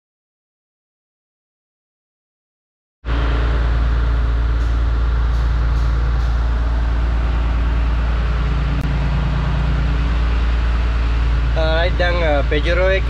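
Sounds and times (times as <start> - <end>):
crane engine running: 3.0 - 13.0.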